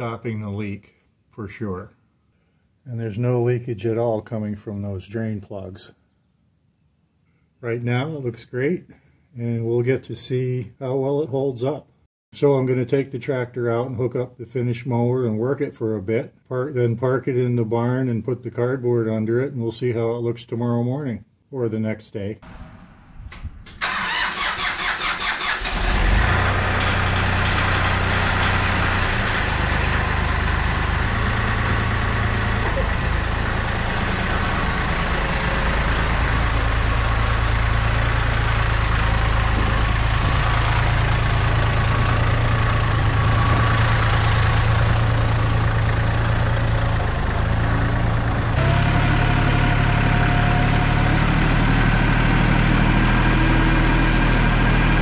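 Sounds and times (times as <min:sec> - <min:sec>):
starter cranking diesel engine: 0:23.6 - 0:55.0
tractor diesel engine running: 0:23.8 - 0:55.0.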